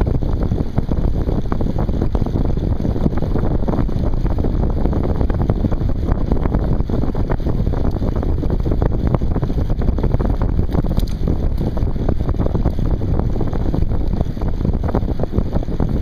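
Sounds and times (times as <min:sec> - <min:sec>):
bicycle tyre and road noise: 0:00.0 - 0:16.0
wind rushing over microphone: 0:00.0 - 0:16.0
small rattling clicks: 0:10.7 - 0:11.7.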